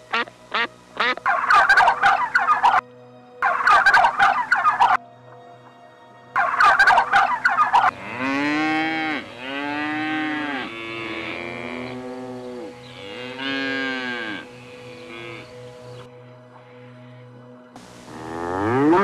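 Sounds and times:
turkey gobbling: 0.1s - 2.8s, 3.4s - 5.0s, 6.4s - 8.0s
cattle mooing: 7.8s - 15.6s, 18.1s - 19.0s.

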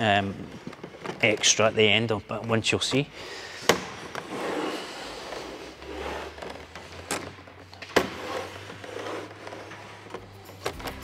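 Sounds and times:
pipe rubbing and scraping: 3.4s - 10.7s.

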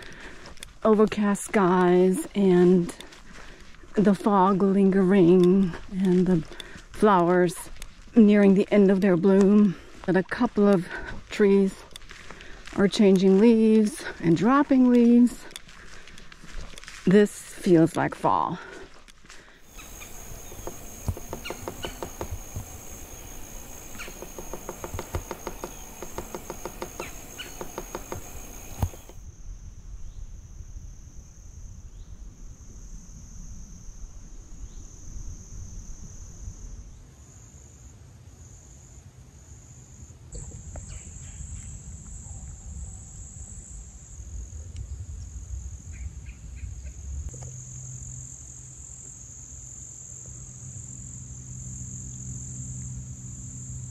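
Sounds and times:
footsteps on sand: 0.0s - 29.2s
insects trilling: 19.6s - 44.6s, 45.6s - 53.9s.

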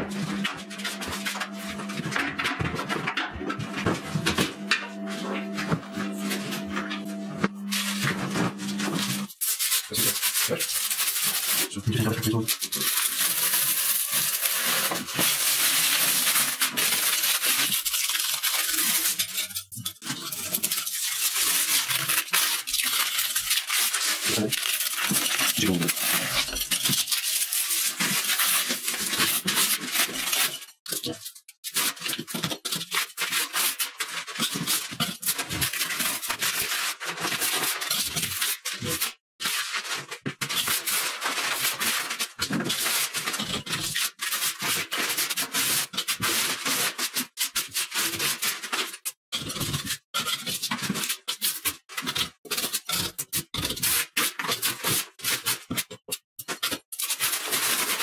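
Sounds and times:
putty knife scraping wallpaper: 0.0s - 58.0s
paper ripping: 5.0s - 31.2s.

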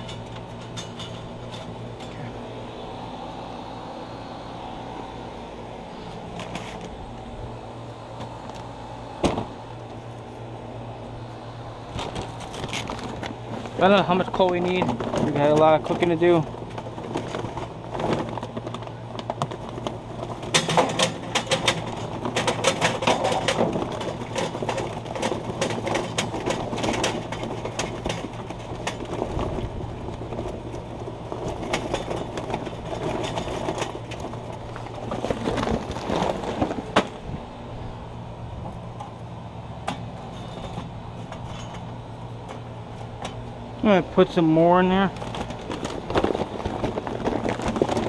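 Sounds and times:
charcoal briquettes pouring: 23.1s - 37.0s, 44.2s - 48.0s.

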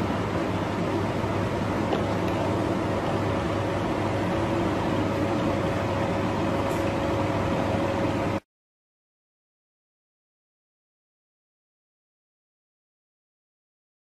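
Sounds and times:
background hum and hiss: 0.0s - 8.4s.

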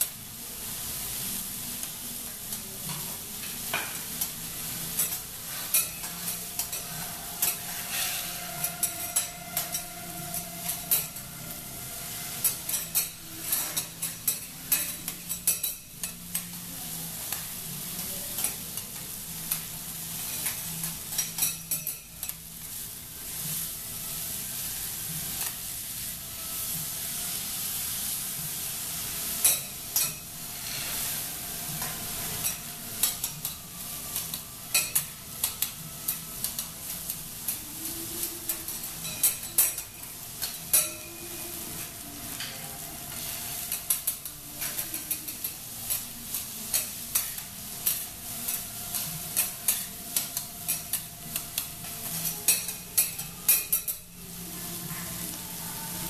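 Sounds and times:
food sizzling on griddle: 0.0s - 56.0s
metal spatulas scraping and clicking: 5.0s - 11.4s, 12.0s - 16.6s, 19.5s - 22.4s, 29.4s - 31.2s, 31.8s - 54.0s.

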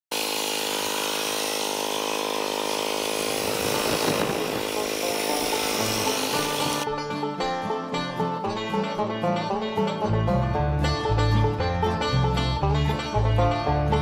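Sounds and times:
garden tractor engine running: 0.1s - 6.9s.

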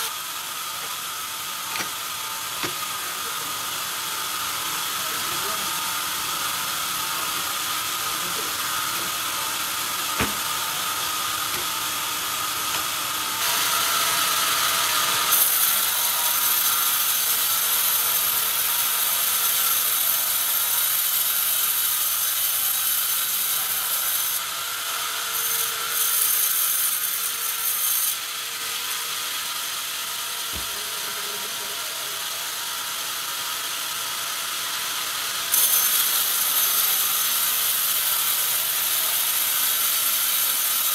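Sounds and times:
band sawmill cutting log: 0.0s - 40.9s
sharp knocks: 2.6s - 2.8s, 10.2s - 10.6s.

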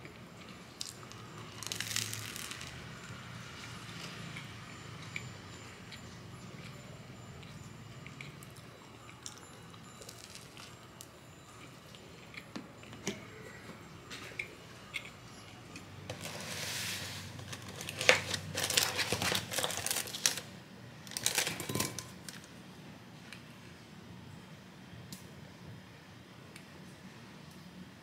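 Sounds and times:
packaging rustling and crinkling: 0.8s - 2.8s, 16.1s - 22.5s.

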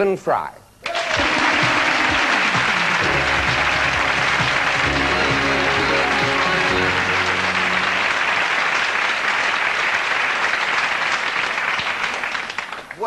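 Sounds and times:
audience applauding: 0.8s - 13.0s
walk-on music: 1.2s - 9.4s.

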